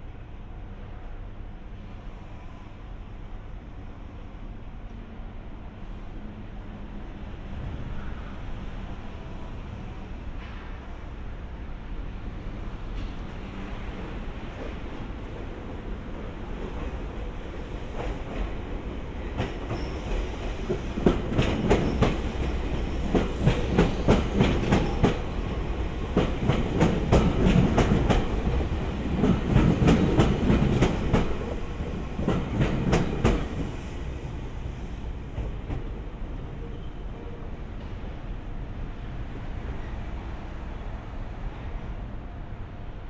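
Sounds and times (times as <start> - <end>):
electric train rumbling past: 0.0 - 43.0.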